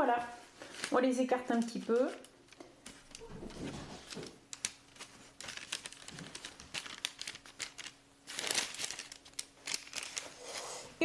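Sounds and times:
parchment paper rustling: 0:00.0 - 0:11.0.

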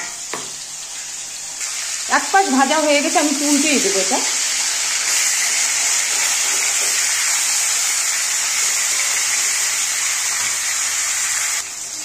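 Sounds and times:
fish frying in hot oil: 0:00.0 - 0:12.0.

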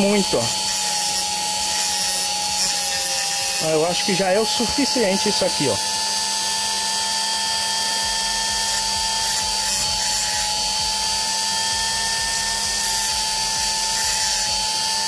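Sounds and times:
rotary tool grinding plastic: 0:00.0 - 0:15.0.

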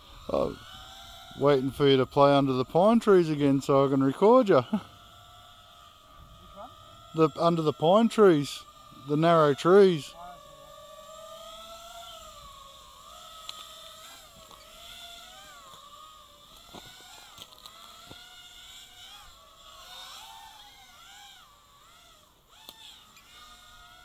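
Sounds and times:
quadcopter motors whining: 0:00.0 - 0:24.0
faint clicks: 0:13.4 - 0:14.7, 0:22.6 - 0:22.8.

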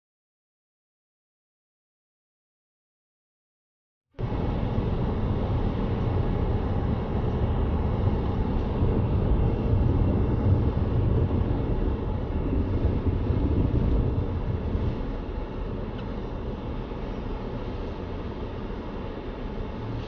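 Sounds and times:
car driving at highway speed: 0:04.2 - 0:20.0.

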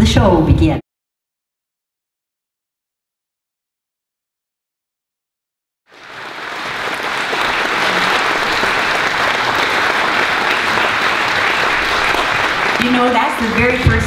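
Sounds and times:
audience applause: 0:05.9 - 0:14.0.

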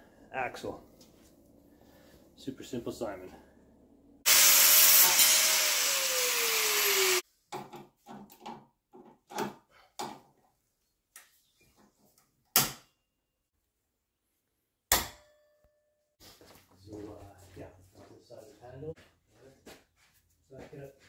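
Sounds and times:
power tool motor working wood: 0:04.3 - 0:07.2.

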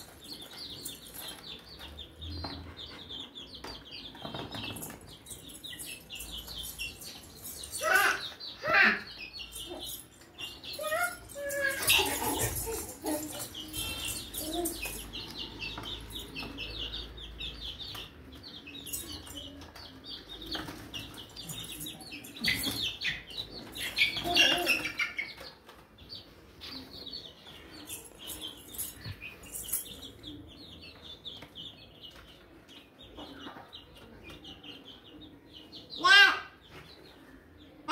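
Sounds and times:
chicks peeping: 0:00.0 - 0:37.9.

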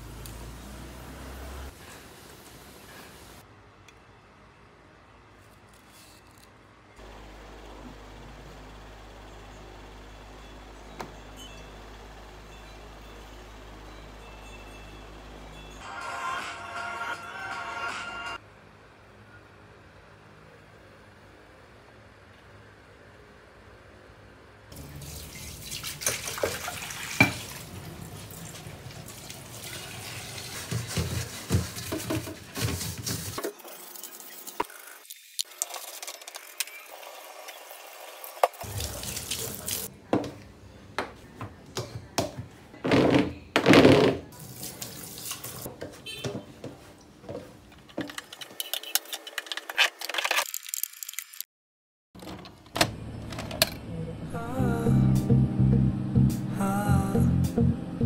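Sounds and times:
tap water running into sink: 0:25.0 - 0:27.7.

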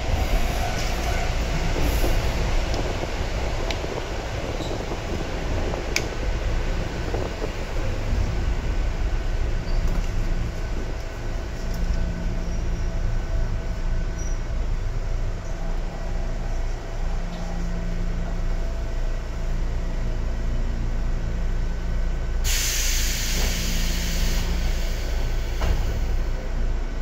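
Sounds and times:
loud hiss: 0:22.4 - 0:26.2.

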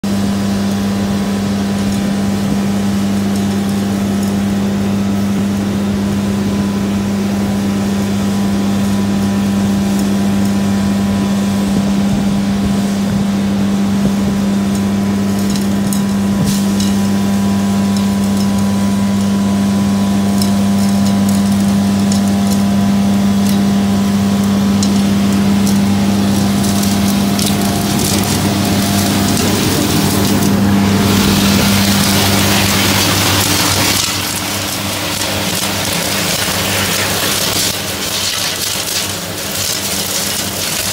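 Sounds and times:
vacuum truck humming: 0:00.0 - 0:40.9
sharp clicks and rattles: 0:24.4 - 0:30.6, 0:31.2 - 0:40.9.

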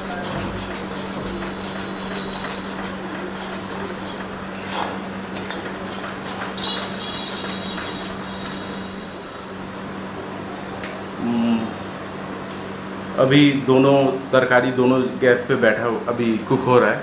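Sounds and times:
metal spatula scraping a wok: 0:00.0 - 0:09.3
masala sizzling: 0:00.0 - 0:10.1.

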